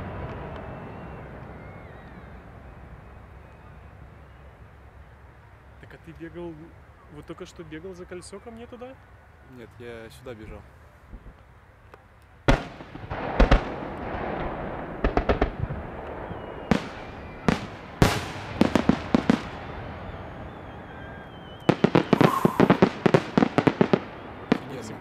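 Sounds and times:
firework shells bursting: 0:12.6 - 0:25.0.

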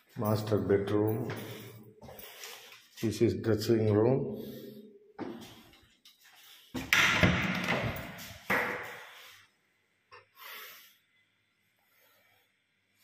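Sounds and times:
door banging: 0:06.9 - 0:08.2.

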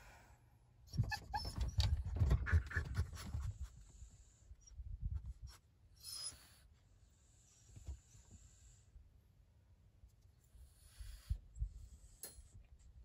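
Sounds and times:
dog whining: 0:00.9 - 0:03.0, 0:06.0 - 0:06.6
dog breathing noisily: 0:10.6 - 0:12.2.

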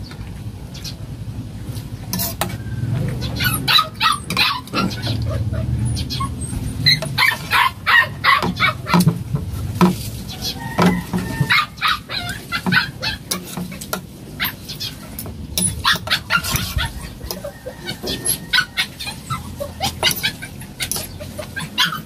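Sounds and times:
cutlery clinking on a plate: 0:12.6 - 0:14.1, 0:15.2 - 0:18.5, 0:19.8 - 0:21.2.

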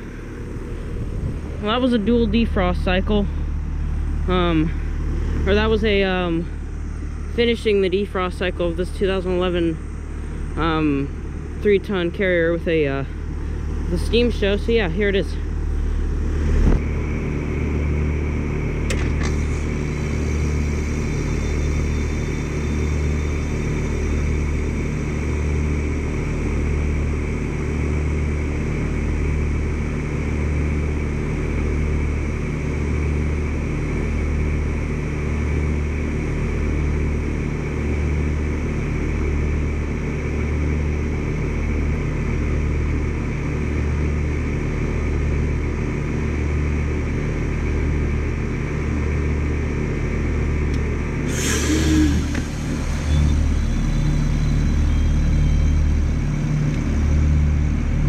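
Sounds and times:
heat pump hum: 0:00.0 - 0:58.0.

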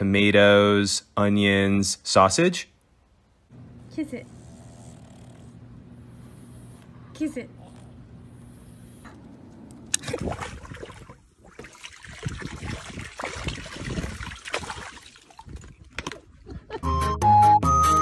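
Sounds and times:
water splashing into a pool: 0:09.9 - 0:16.3
water gushing from a hose: 0:11.6 - 0:15.6.

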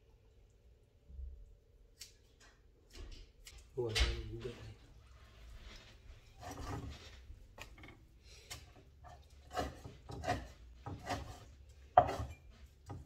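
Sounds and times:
cleaver chopping meat on wood: 0:12.0 - 0:13.0.

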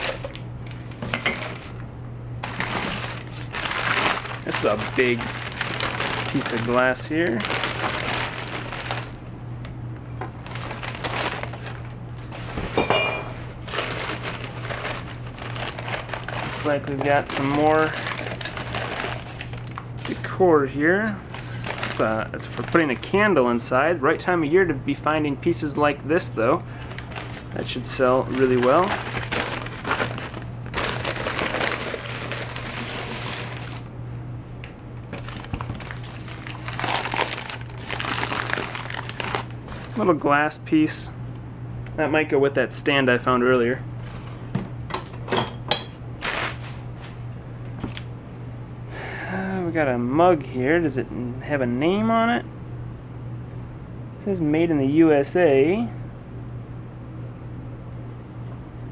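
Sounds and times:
steady low hum: 0:00.0 - 0:58.9
glass clinking: 0:01.1 - 0:01.6, 0:12.8 - 0:13.4, 0:45.3 - 0:46.0
newspaper rustling: 0:02.4 - 0:09.2, 0:10.3 - 0:12.9, 0:13.6 - 0:20.4, 0:21.2 - 0:23.2, 0:26.7 - 0:33.8, 0:35.1 - 0:40.1, 0:46.2 - 0:47.2.

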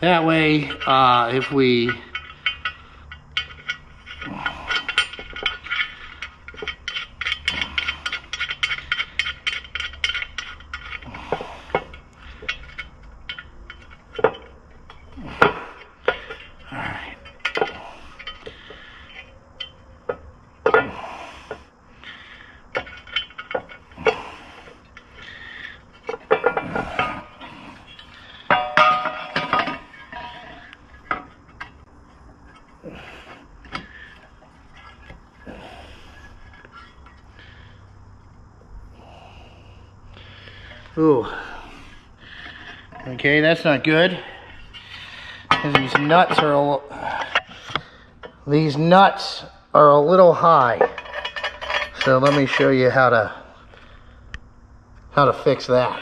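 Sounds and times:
steel nuts clinking on metal plate: 0:00.0 - 0:21.0, 0:22.7 - 0:31.8, 0:42.4 - 0:49.4, 0:50.6 - 0:53.3.

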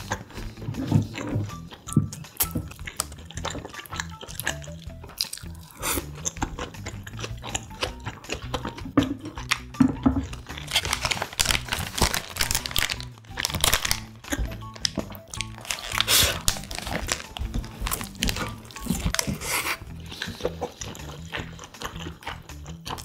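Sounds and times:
sandwich bitten and chewed: 0:00.0 - 0:23.0
soft background music: 0:00.0 - 0:23.0
paper wrapper crinkling: 0:10.4 - 0:19.7.

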